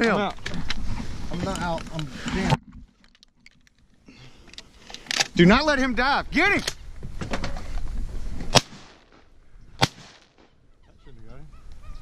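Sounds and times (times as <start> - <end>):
shotgun shots: 8.5 - 9.2, 9.8 - 10.5.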